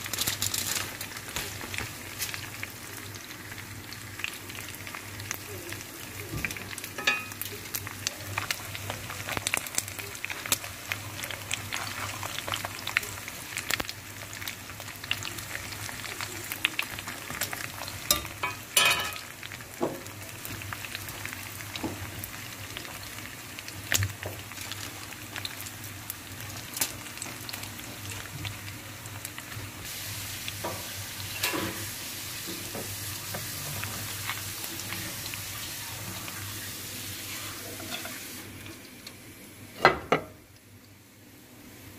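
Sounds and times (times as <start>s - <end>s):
oil popping and crackling: 0.0s - 31.8s
steaks sizzling in pan: 0.0s - 39.8s.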